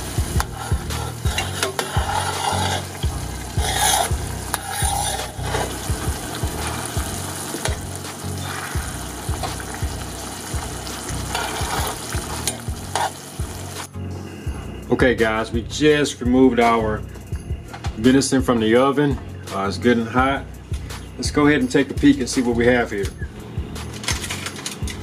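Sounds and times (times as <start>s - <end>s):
sauce sizzling and bubbling: 0.0s - 13.9s.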